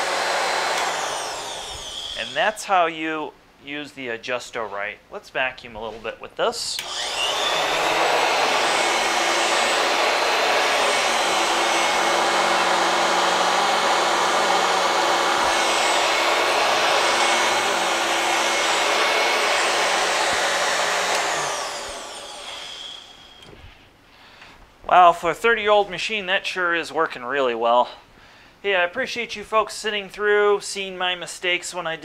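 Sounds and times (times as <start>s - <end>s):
motor winding down whine: 0.0s - 2.4s, 6.8s - 23.6s
vacuum cleaner running on carpet: 0.0s - 2.4s, 6.8s - 23.5s.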